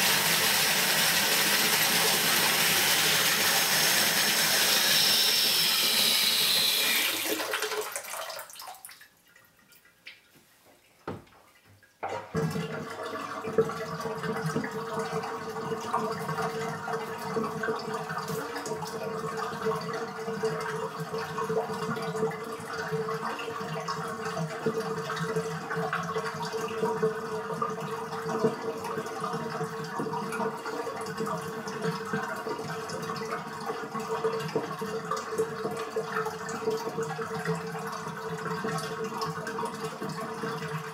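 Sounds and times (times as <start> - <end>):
tub draining with gurgling rush: 0.0 - 9.0, 12.0 - 40.9
faucet running into tub: 0.0 - 9.8.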